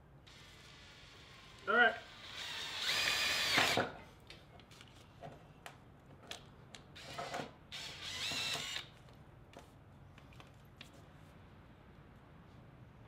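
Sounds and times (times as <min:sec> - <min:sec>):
cordless drill whine: 0:02.2 - 0:03.8, 0:07.0 - 0:08.9.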